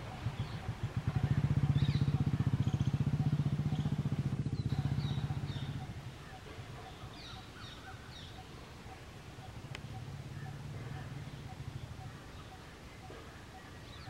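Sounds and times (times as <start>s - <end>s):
vehicle engine passing by: 0.0s - 7.4s, 9.8s - 12.5s
bird chirps: 0.0s - 14.0s.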